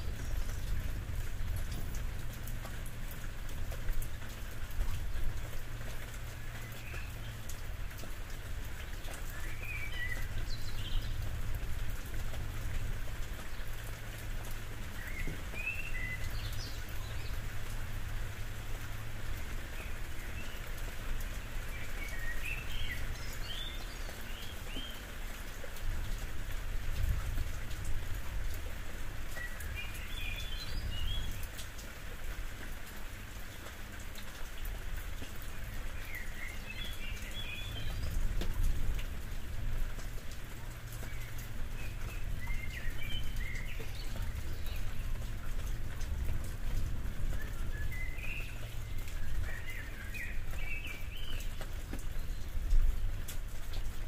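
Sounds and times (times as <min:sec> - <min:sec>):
rain on a roof: 0:00.0 - 0:54.0.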